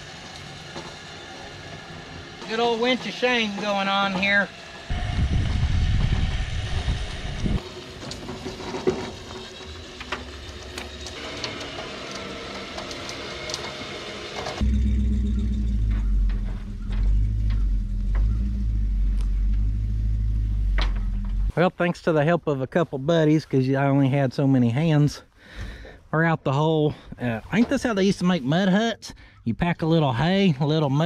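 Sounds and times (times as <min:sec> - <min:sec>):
winch pulling: 0:00.2 - 0:05.0, 0:07.0 - 0:21.5
low engine hum: 0:04.6 - 0:07.6, 0:09.6 - 0:21.6.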